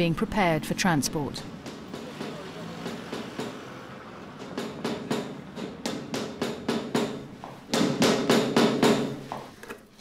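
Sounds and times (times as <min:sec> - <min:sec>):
hammer blows: 0:01.5 - 0:09.2.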